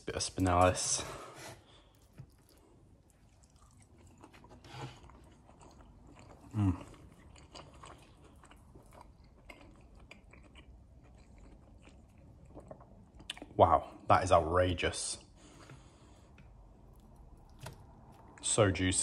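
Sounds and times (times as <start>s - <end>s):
person chewing steak: 1.7s - 13.4s.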